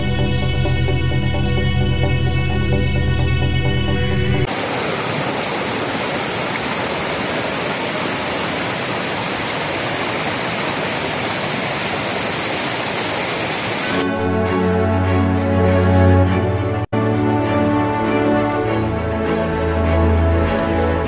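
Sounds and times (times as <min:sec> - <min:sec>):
stream rushing over rocks: 0:04.5 - 0:14.0.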